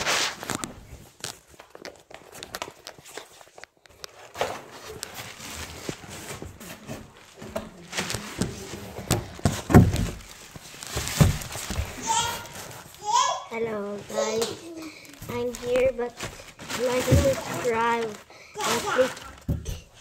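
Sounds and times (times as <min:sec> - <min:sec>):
phone handling bumps and rustles: 0:04.4 - 0:12.7
heavy thumps: 0:06.5 - 0:12.0.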